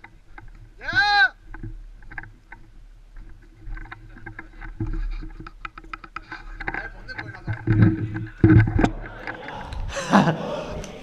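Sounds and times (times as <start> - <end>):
light clicks and knocks of gear: 1.4 - 8.6.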